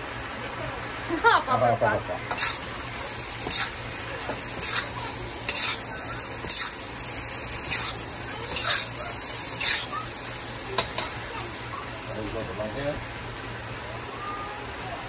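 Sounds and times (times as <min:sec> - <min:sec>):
shrimp sizzling in pan: 0:00.0 - 0:15.0
spoon scraping pan: 0:02.3 - 0:02.6, 0:03.4 - 0:06.8, 0:07.6 - 0:08.9, 0:09.5 - 0:09.9.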